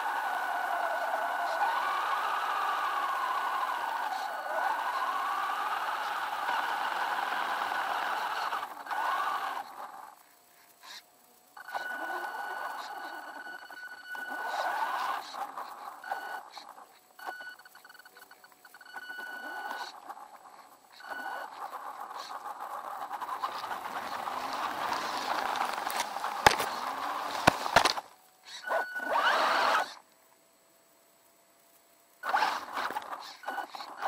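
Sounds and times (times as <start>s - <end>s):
toy truck motor whirring: 0.0s - 30.0s, 32.2s - 34.0s
truck bumping into brush: 24.2s - 28.1s.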